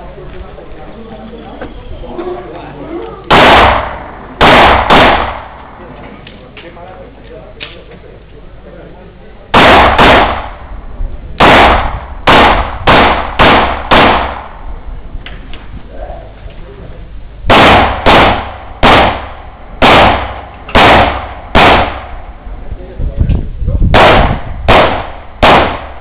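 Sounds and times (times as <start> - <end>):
handgun shots with echo: 3.3 - 5.8, 9.6 - 10.6, 11.4 - 14.6, 17.5 - 22.1, 24.0 - 26.0.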